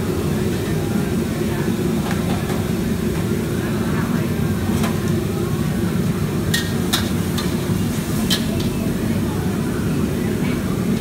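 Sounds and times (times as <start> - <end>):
utensil clanking against wok: 6.4 - 8.8.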